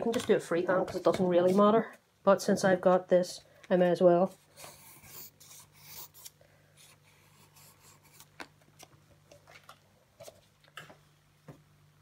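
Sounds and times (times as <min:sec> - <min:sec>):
pencil scratching on paper: 0:04.5 - 0:08.3.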